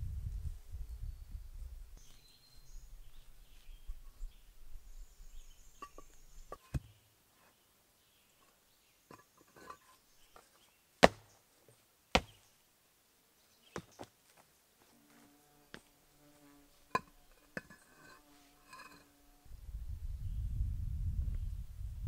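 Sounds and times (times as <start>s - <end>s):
paver knocking under foot: 11.0s - 11.3s, 12.2s - 12.4s.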